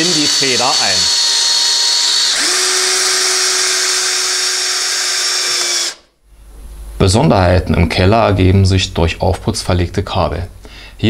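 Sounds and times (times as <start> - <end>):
cordless drill whining: 0.0 - 6.1.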